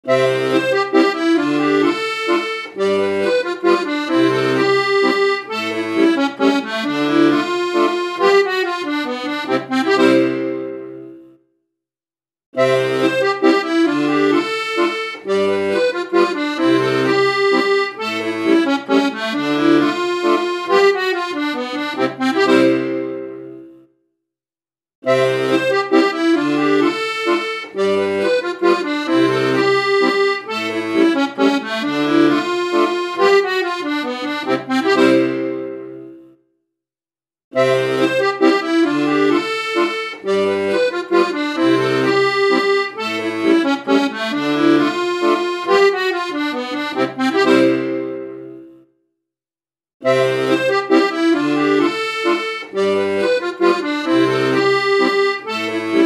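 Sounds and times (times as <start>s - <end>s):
instrumental background music: 0.1s - 11.3s, 25.1s - 36.3s, 37.6s - 48.8s, 50.0s - 56.0s.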